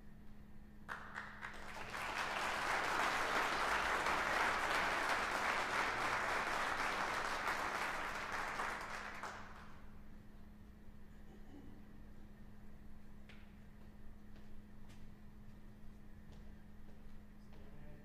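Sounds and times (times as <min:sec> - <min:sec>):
audience applauding: 0:00.9 - 0:09.8.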